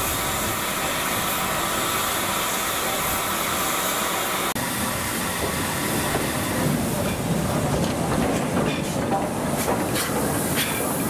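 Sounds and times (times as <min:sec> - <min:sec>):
steam hissing from locomotive: 0:00.0 - 0:07.6, 0:08.7 - 0:11.0
train rumbling and rattling: 0:00.0 - 0:11.0
wheels clicking over rail joints: 0:05.4 - 0:11.0.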